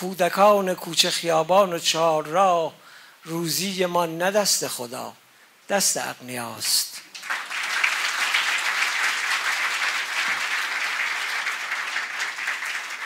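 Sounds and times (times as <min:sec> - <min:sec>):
person speaking: 0:00.0 - 0:07.1
audience applauding: 0:07.1 - 0:13.0.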